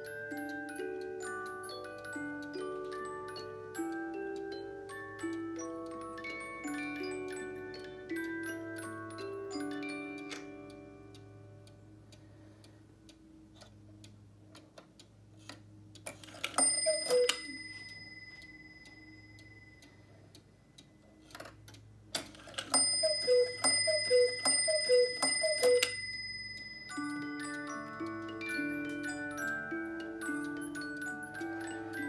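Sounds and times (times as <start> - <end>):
cuckoo clock call: 0.0 - 12.8, 16.0 - 21.5, 22.1 - 32.0
music box tune: 0.0 - 12.8, 16.1 - 21.3, 22.2 - 32.0
clock ticking: 0.0 - 32.0
clock strike ringing: 16.4 - 19.8, 22.6 - 32.0.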